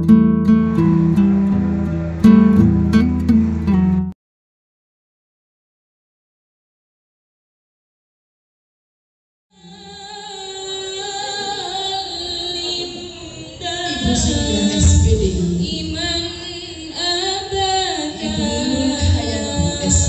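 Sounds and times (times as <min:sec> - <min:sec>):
music with woman singing: 0:09.6 - 0:20.0.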